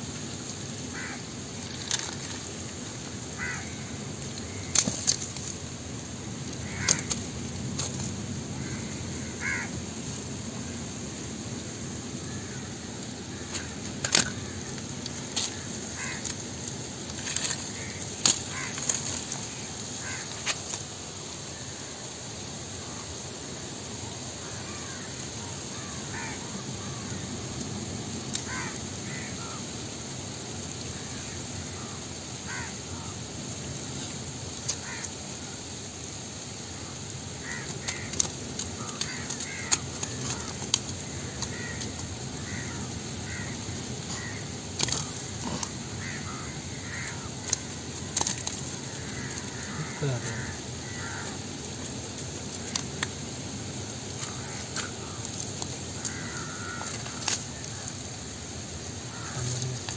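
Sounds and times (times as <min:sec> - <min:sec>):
outdoor background: 0:00.0 - 0:59.9
crows cawing: 0:00.9 - 0:01.2, 0:03.4 - 0:05.2, 0:06.6 - 0:07.2, 0:08.6 - 0:09.8, 0:15.4 - 0:16.4, 0:17.2 - 0:20.5, 0:24.4 - 0:27.2, 0:28.3 - 0:29.7, 0:31.0 - 0:33.2, 0:34.8 - 0:35.2, 0:37.4 - 0:51.4, 0:54.2 - 0:58.0, 0:59.1 - 0:59.9.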